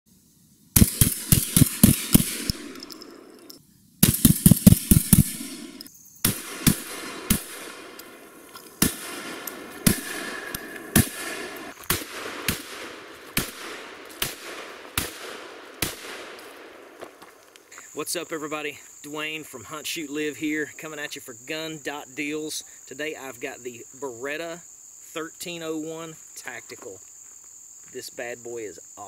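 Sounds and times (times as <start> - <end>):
shotgun shots with echo: 0.8 - 17.3.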